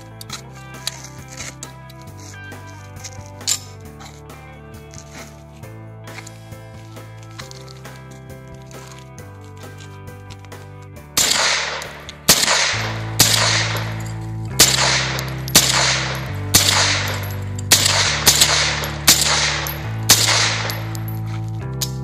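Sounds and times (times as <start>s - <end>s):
background music: 0.0s - 22.0s
gunshots with echo: 11.2s - 14.0s, 14.6s - 21.1s.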